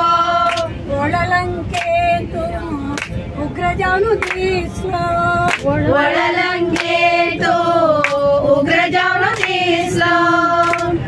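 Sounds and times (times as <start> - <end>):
group singing devotional song: 0.0 - 2.5, 3.6 - 11.0
hand claps: 0.4 - 0.7, 1.7 - 2.0, 3.0 - 3.2, 4.2 - 4.5, 5.5 - 5.7, 6.7 - 7.0, 8.0 - 8.3, 9.3 - 9.6, 10.6 - 11.0.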